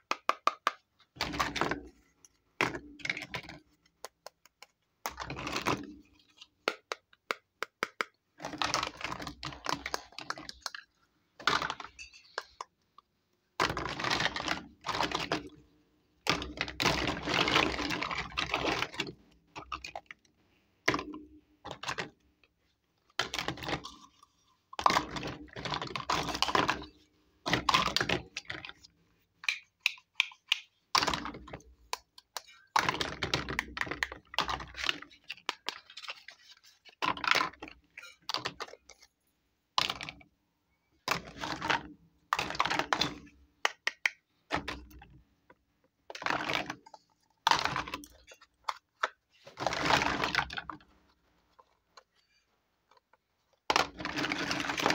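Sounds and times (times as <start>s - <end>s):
plastic toys clattering: 7.8s - 12.8s, 13.6s - 15.6s, 16.2s - 20.2s, 20.9s - 22.2s, 23.0s - 39.1s, 41.0s - 50.9s, 51.5s - 54.9s.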